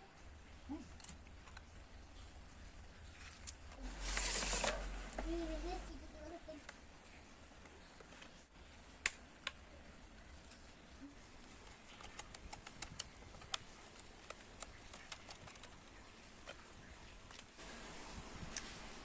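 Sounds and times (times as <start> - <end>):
screwdriver clicking on plastic case: 11.9 - 15.9.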